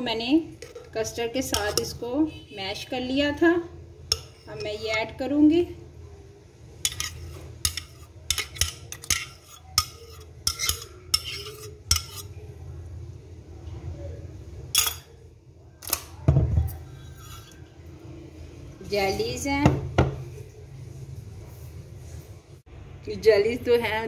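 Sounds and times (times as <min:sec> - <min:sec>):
spoon clinking on glass bowl: 0:14.7 - 0:15.1.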